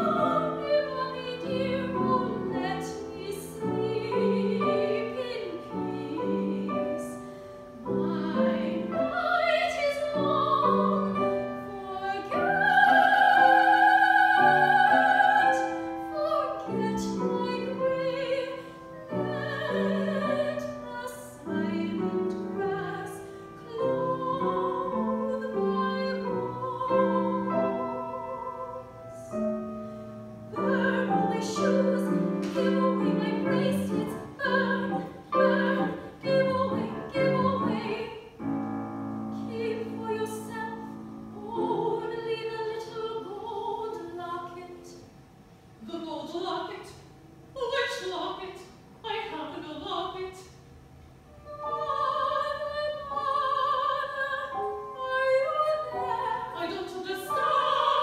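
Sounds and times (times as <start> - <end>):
operatic singing: 0.0 - 29.4, 30.5 - 38.3
piano accompaniment: 0.0 - 58.0.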